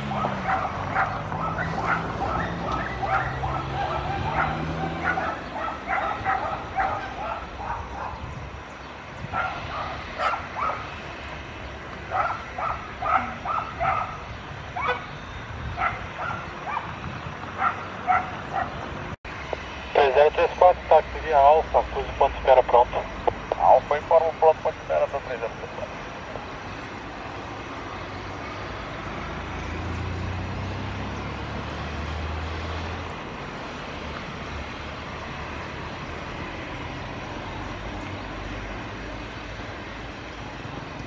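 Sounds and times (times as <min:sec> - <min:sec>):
dog barking and yipping: 0:00.0 - 0:08.2, 0:09.3 - 0:11.0, 0:12.1 - 0:15.1, 0:15.8 - 0:17.0, 0:17.6 - 0:18.8.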